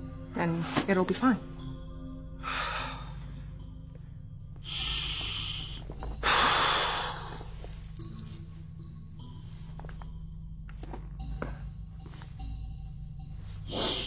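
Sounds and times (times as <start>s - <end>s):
man breathing out heavily: 4.7s - 7.6s.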